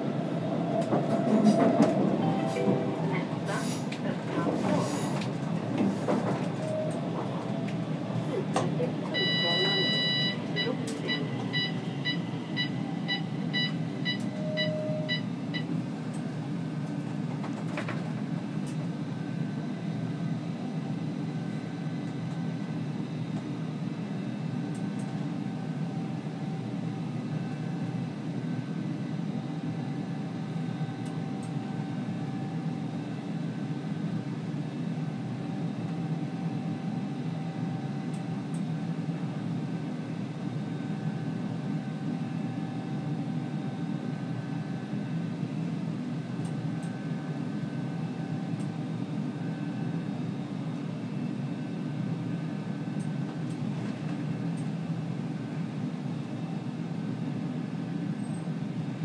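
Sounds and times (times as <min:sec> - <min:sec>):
metro train rumbling: 0:00.0 - 0:59.0
electronic beeps: 0:09.2 - 0:15.2.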